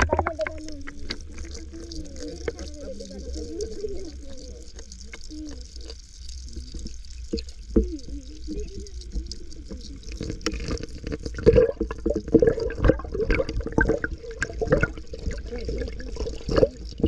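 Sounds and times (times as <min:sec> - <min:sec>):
low underwater rumble: 0:00.0 - 0:17.0
water sloshing and bubbling underwater: 0:00.0 - 0:17.0.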